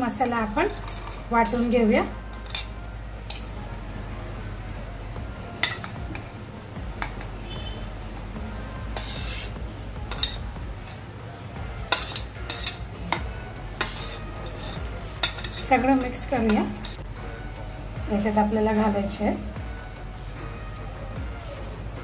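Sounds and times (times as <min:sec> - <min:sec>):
spoon scraping steel jar: 0:00.1 - 0:03.5, 0:05.6 - 0:06.4, 0:08.6 - 0:11.1, 0:11.9 - 0:17.0
steel spoon clinking on jar: 0:00.7 - 0:03.5, 0:05.6 - 0:06.4, 0:11.9 - 0:13.2, 0:13.8 - 0:17.0.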